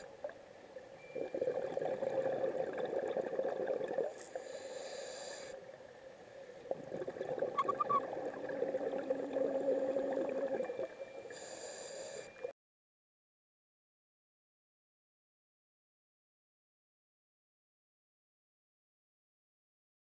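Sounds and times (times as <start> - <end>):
bubbling underwater exhalation: 1.2 - 4.1, 6.7 - 10.8
high hissing regulator inhalation: 11.3 - 12.3.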